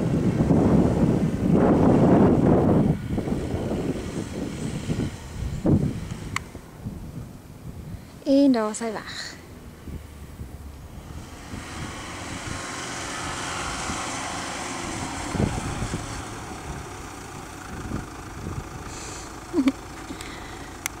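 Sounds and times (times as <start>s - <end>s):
wheels spinning in sand: 0.0s - 6.6s, 11.0s - 21.0s
car engine running: 8.8s - 21.0s.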